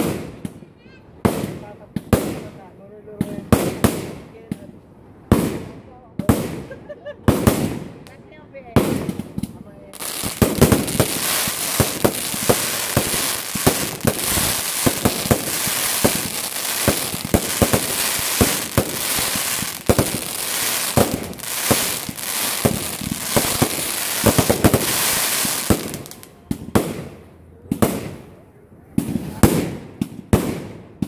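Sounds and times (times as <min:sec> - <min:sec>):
fireworks crackling and popping: 0:05.3 - 0:27.1.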